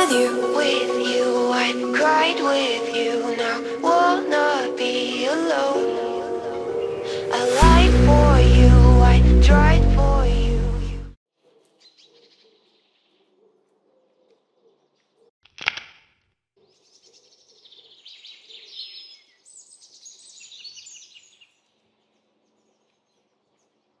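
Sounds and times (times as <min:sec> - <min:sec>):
birds chirping: 0:06.0 - 0:07.4, 0:11.6 - 0:15.3.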